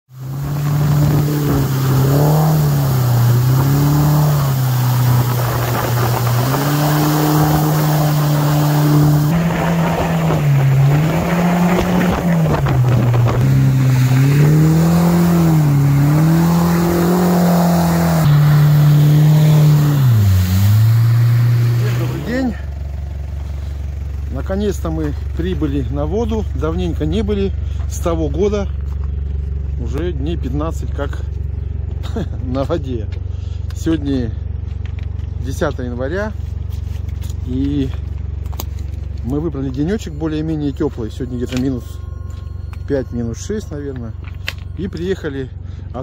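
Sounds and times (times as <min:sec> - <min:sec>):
outboard motor at speed: 0:00.1 - 0:29.4.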